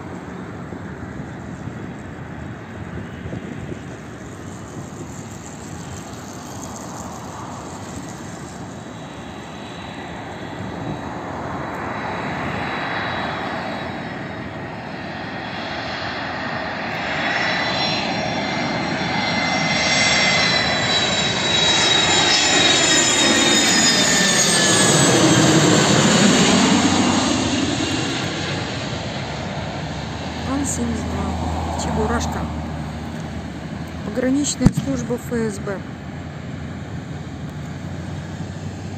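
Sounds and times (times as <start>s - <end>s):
high engine whine: 0.0s - 38.9s
jet aircraft engines approaching: 0.0s - 38.9s.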